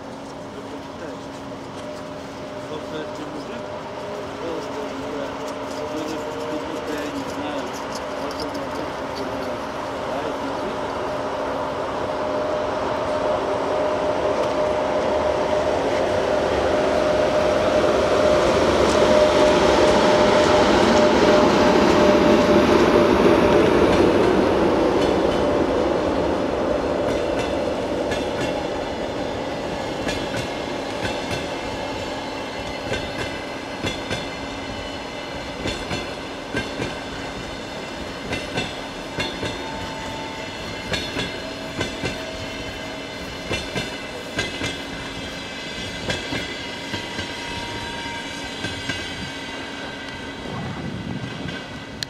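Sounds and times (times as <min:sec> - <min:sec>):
train wheels clicking over rail joints: 0:00.0 - 0:09.8, 0:27.0 - 0:50.3
electric locomotive running: 0:00.0 - 0:52.0.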